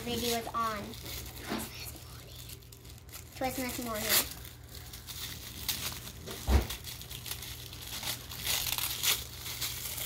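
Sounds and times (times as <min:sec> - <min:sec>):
toy packaging crinkling: 0:00.0 - 0:10.0.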